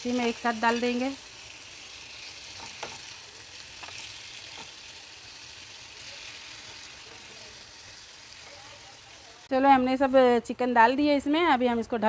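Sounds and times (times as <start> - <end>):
chicken sizzling in a pan: 0.0 - 9.5.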